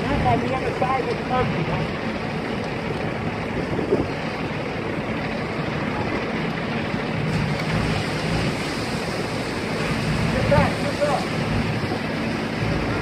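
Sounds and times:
building fire burning: 0.0 - 13.0
fire engine rumbling: 0.0 - 13.0.

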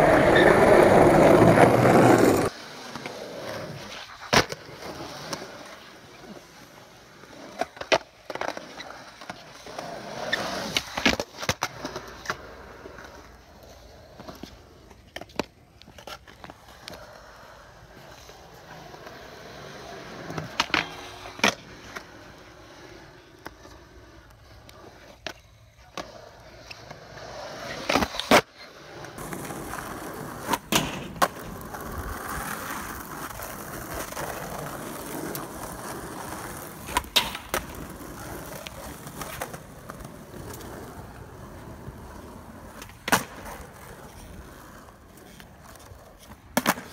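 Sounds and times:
skateboard clacking on ground: 0.0 - 46.9
skateboard wheels rolling on concrete: 0.0 - 46.9.

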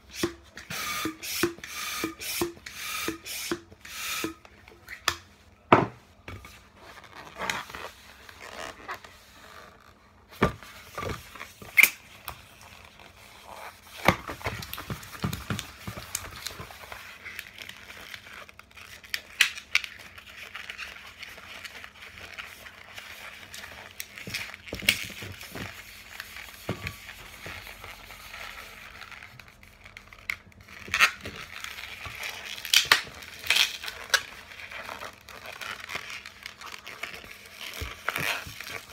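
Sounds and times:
balloon squeaking and rubbing: 6.8 - 19.0, 22.0 - 38.9.

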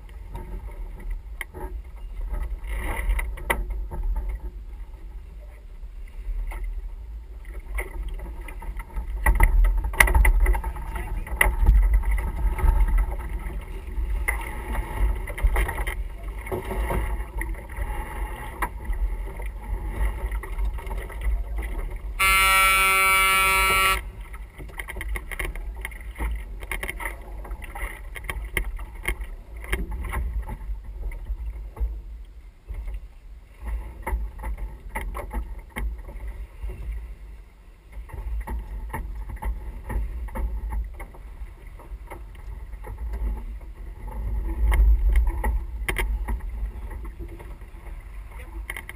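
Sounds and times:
loud horn blast: 22.2 - 24.2.

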